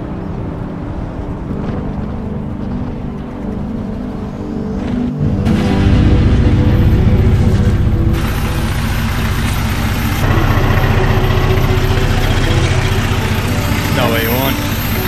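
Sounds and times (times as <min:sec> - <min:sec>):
car engine idling: 0:05.2 - 0:15.0.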